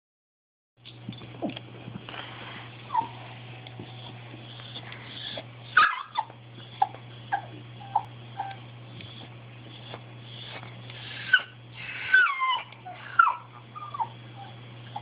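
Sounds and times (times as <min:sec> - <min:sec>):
dog whimpering in high yips: 0:02.9 - 0:03.2, 0:04.6 - 0:09.3, 0:10.3 - 0:15.0.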